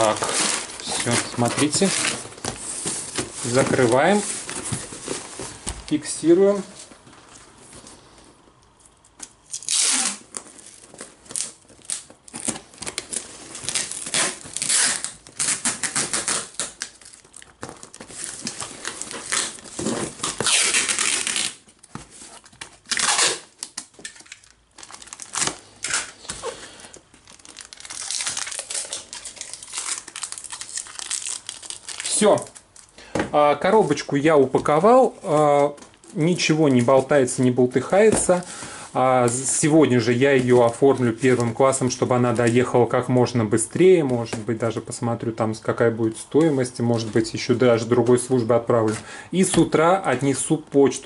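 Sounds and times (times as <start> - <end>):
packing tape pulled off roll: 9.2 - 21.8, 22.4 - 32.9.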